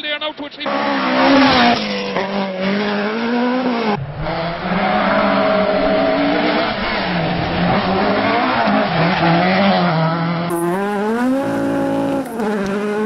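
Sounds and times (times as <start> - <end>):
rally car engine at high revs: 0.6 - 13.0.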